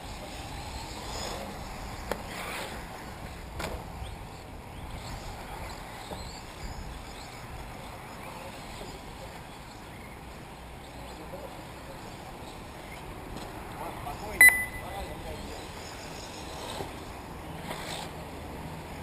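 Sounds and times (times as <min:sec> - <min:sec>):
electric rc cars whining: 0:00.1 - 0:09.8, 0:15.2 - 0:18.9.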